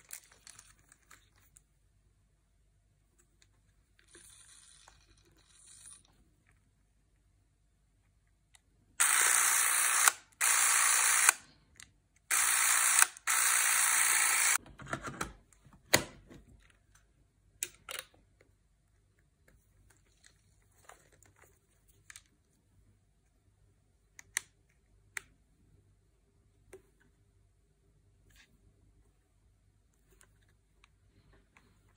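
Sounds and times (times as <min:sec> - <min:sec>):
film camera motor running: 0:09.0 - 0:11.4, 0:12.3 - 0:14.6.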